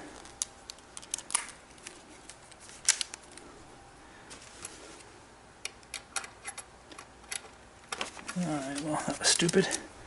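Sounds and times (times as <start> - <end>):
parts clicking together: 5.6 - 8.1.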